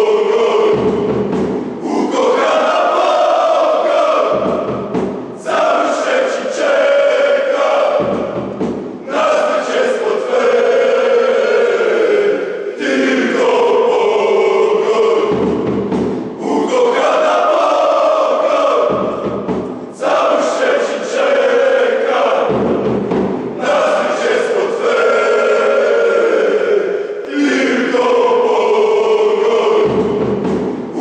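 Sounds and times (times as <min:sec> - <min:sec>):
crowd chanting in unison: 0:00.0 - 0:31.0
bass drum beats: 0:00.4 - 0:02.8, 0:04.1 - 0:05.8, 0:07.9 - 0:09.1, 0:14.8 - 0:17.0, 0:18.8 - 0:20.1, 0:22.4 - 0:23.7, 0:28.9 - 0:31.0.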